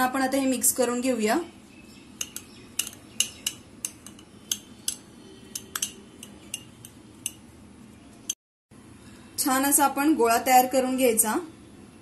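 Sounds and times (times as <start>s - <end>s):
metal spoon clinking on glass: 2.2s - 7.4s.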